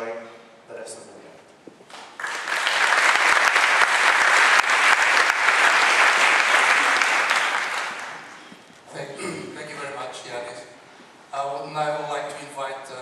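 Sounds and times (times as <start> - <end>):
audience applauding: 1.9 - 8.8.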